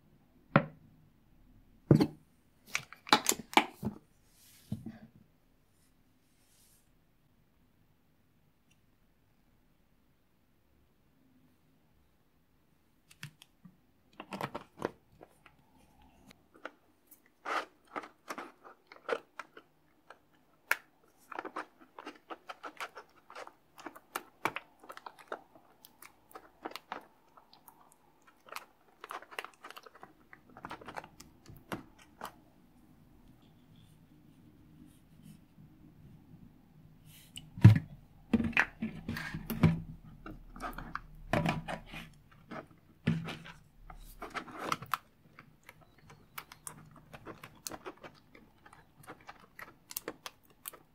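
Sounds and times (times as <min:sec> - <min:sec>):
spatula squelching slime: 0:14.2 - 0:32.7, 0:39.0 - 0:50.9.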